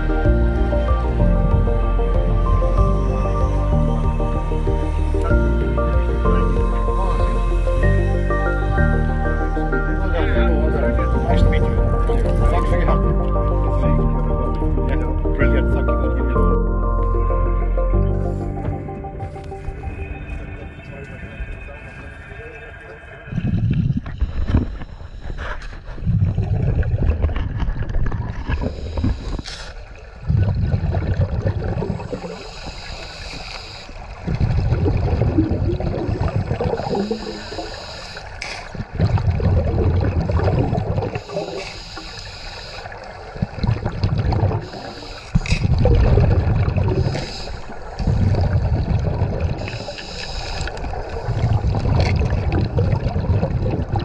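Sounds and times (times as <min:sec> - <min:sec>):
underwater exhaled air bubbles: 0:22.8 - 0:54.0
underwater breathing hiss: 0:28.6 - 0:29.9, 0:32.1 - 0:34.2, 0:36.7 - 0:38.8, 0:41.1 - 0:43.2, 0:44.6 - 0:45.8, 0:46.8 - 0:48.6, 0:49.6 - 0:51.8.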